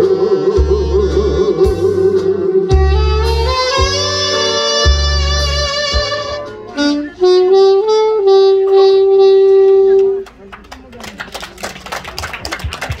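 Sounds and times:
wind instrument holding a note: 0.0s - 10.3s
scattered clapping: 9.5s - 13.0s.

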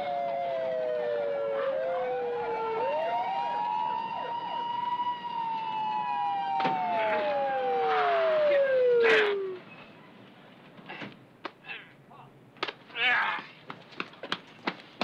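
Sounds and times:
police sirens wailing: 0.0s - 9.7s.

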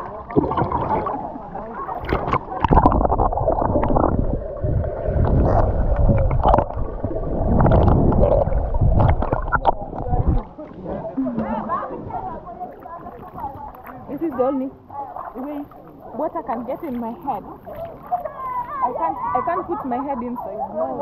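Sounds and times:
underwater gurgle and rumble: 0.0s - 19.4s
water splashing: 0.0s - 21.0s
bubbly clicks: 0.3s - 1.2s, 2.0s - 10.5s.

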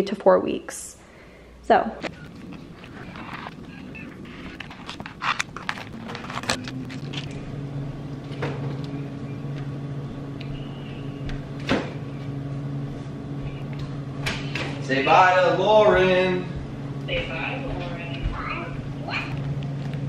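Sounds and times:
refrigerator humming: 1.1s - 20.0s
plastic packs crackling: 2.0s - 7.7s.

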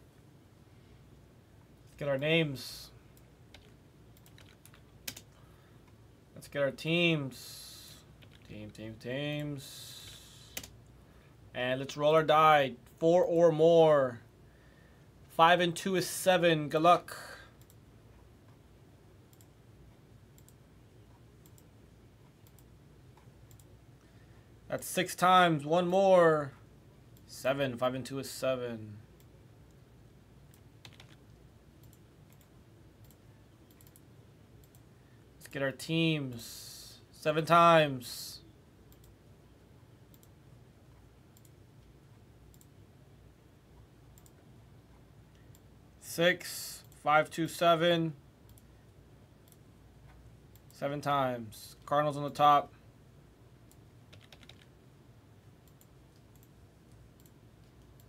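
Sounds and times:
computer mouse clicks: 3.1s - 6.0s, 8.2s - 10.8s, 17.6s - 17.8s, 19.3s - 19.6s, 20.4s - 23.8s, 30.4s - 35.6s, 38.9s - 39.2s, 40.1s - 41.6s, 42.5s - 42.8s, 44.2s - 45.7s, 48.5s - 48.7s, 49.4s - 50.8s, 53.7s - 54.7s, 55.6s - 58.0s.

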